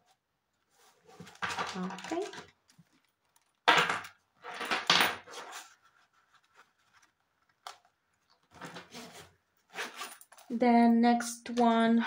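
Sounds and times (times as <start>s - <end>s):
wallet zipper opening: 8.9s - 10.2s.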